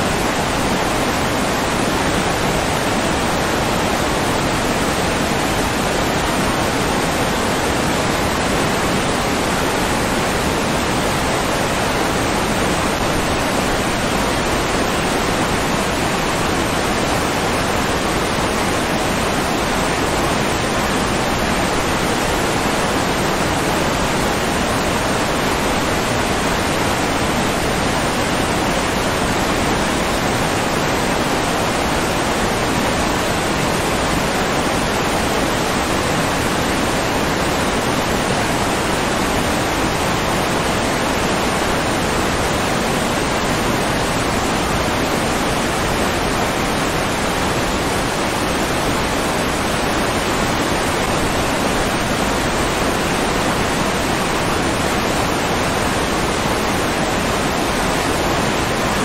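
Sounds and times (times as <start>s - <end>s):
rushing water: 0.0s - 59.0s.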